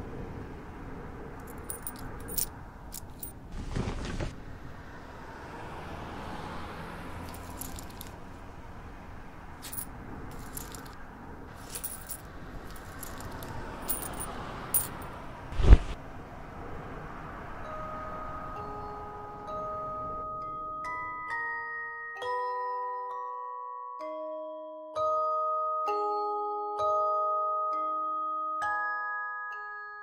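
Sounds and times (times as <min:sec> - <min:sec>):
metallic jingling and clinking: 0:01.4 - 0:03.4, 0:07.2 - 0:08.2, 0:09.6 - 0:15.1.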